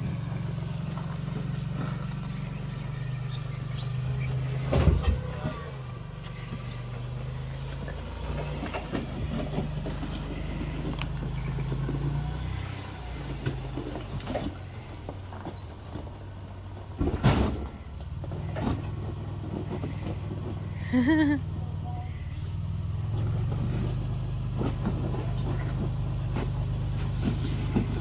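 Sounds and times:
vehicle engine revving: 0.0 - 28.0
loud clunk: 4.6 - 5.4, 17.0 - 17.8.

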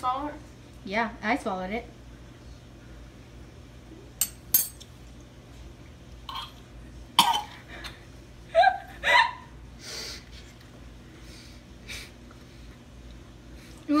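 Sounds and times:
girl coughing: 7.2 - 7.6
girl gagging: 8.6 - 9.5.

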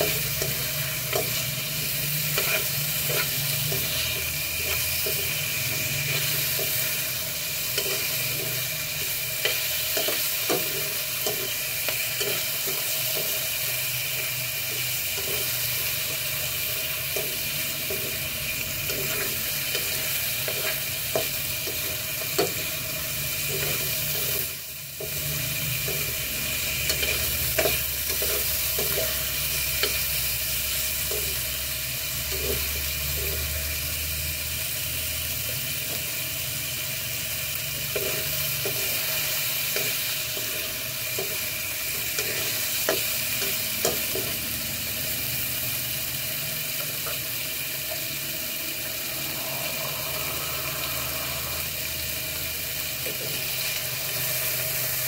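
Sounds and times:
metal spoon scraping a wok: 0.0 - 13.4
food sizzling in hot oil: 0.0 - 55.0.

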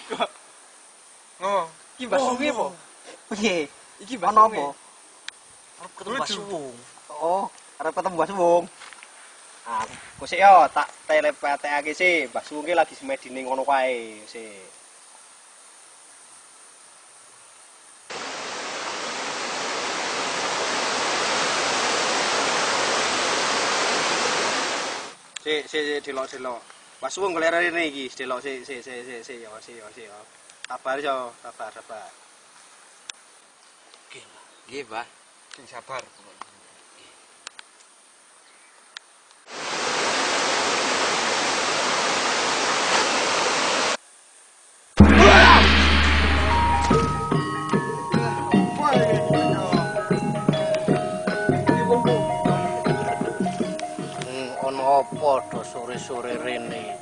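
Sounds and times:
waterfall rushing: 18.1 - 25.2, 39.5 - 44.0, 45.0 - 47.6.

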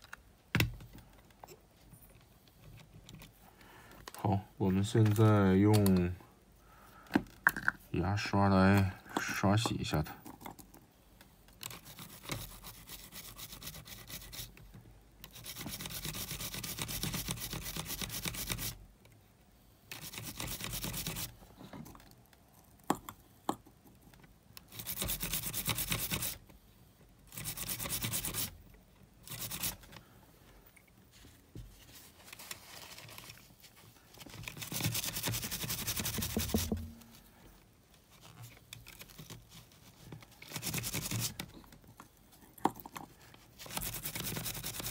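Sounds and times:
toothbrush scrubbing: 34.6 - 37.0.

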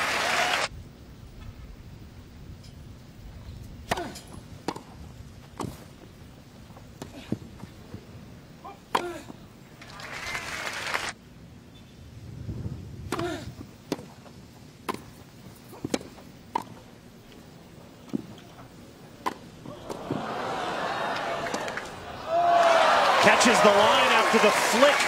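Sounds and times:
crowd noise: 0.0 - 0.7, 17.7 - 25.0
racket hitting tennis ball: 3.9 - 5.0, 14.8 - 16.8, 19.2 - 20.2.

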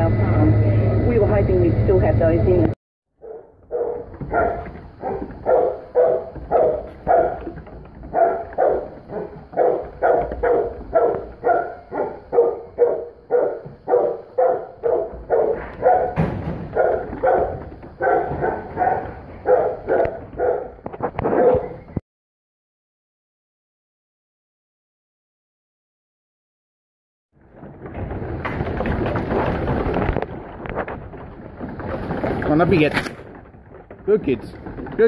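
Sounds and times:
dog barking: 3.2 - 21.8.

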